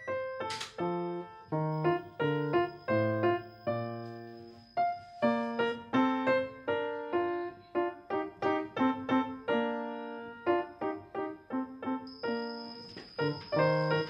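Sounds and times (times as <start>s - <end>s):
gentle piano melody: 0.0s - 14.0s.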